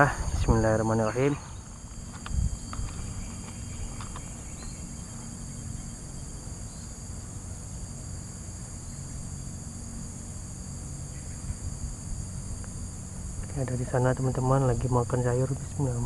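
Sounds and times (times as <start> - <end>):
low rumble on microphone: 0.0 - 7.7
insects droning: 0.0 - 16.0.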